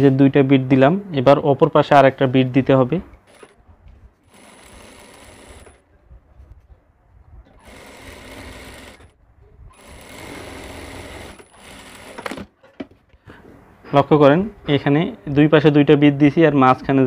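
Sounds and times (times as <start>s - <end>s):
sewing machine stitching: 3.3s - 3.6s, 4.2s - 5.8s, 7.6s - 12.6s.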